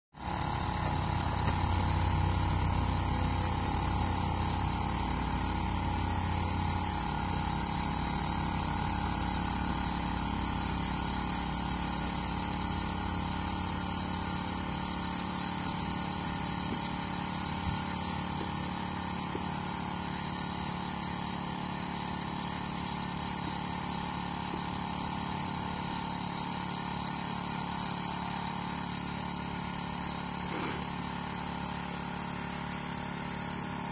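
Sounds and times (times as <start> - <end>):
engine droning: 0.3 - 21.2.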